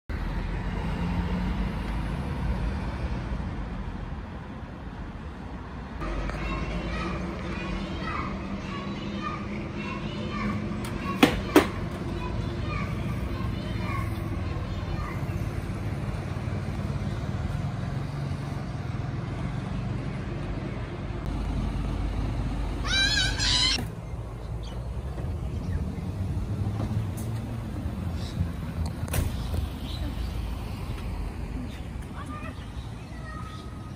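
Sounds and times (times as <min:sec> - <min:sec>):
diesel truck engines rumbling: 0:00.1 - 0:33.9
diesel truck engine driving past: 0:12.2 - 0:28.8.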